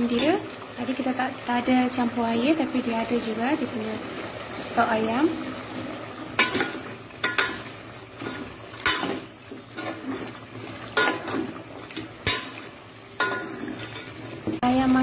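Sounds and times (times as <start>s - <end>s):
metal ladle clanking on pot: 6.4s - 10.3s, 10.9s - 12.6s, 13.2s - 14.2s
ladle scraping pot: 6.4s - 14.6s.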